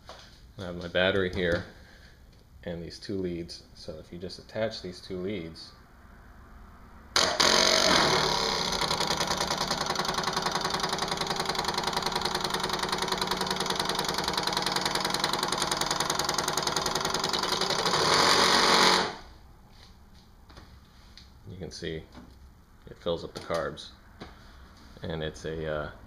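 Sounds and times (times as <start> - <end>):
electric fuel pump buzzing: 7.2 - 19.3.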